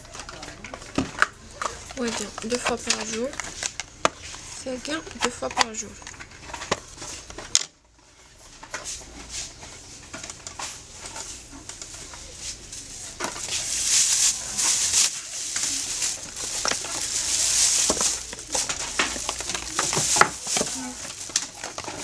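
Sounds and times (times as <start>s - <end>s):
plastic bag rustling: 0.0s - 22.0s
cardboard boxes knocking on counter: 16.5s - 22.0s.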